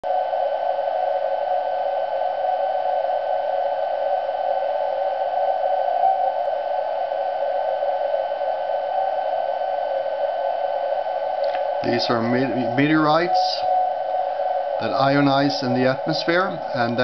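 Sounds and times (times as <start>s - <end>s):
thin steady whistles: 0.0s - 17.0s
radio hiss: 0.1s - 17.0s
faint beat tone: 11.4s - 17.0s.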